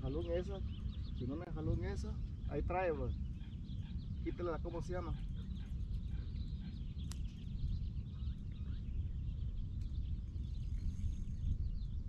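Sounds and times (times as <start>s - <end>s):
small birds chirping: 0.0s - 12.0s
wind buffeting microphone: 0.0s - 12.0s.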